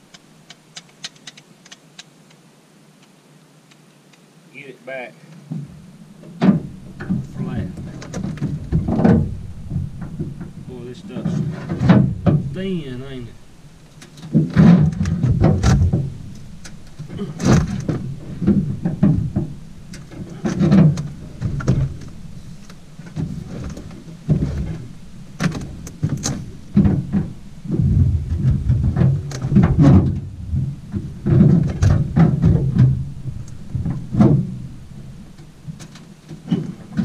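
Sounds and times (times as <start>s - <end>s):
metal creaking and clanking: 5.5s - 37.0s.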